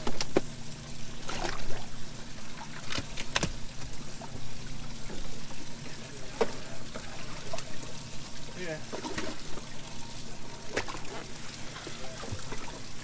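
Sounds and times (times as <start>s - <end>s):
water trickling and splashing: 0.0s - 13.0s.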